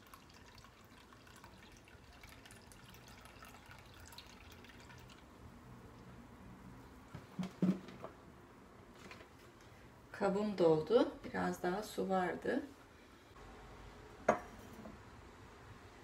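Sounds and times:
liquid trickling and dripping: 0.0 - 6.1
glass jar set down on counter: 14.3 - 15.0.

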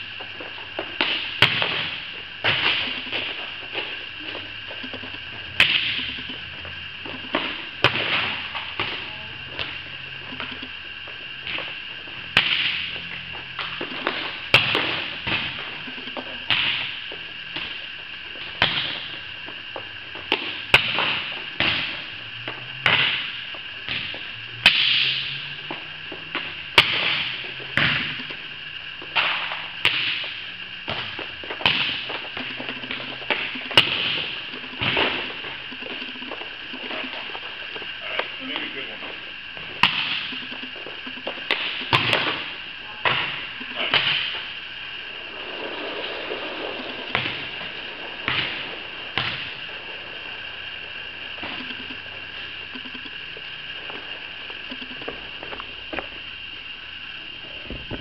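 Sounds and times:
steady high hum: 0.0 - 58.0
volleyballs struck and bouncing: 0.8 - 10.8, 11.4 - 17.8, 20.2 - 28.4, 29.0 - 38.8, 39.6 - 44.6, 45.6 - 50.4.

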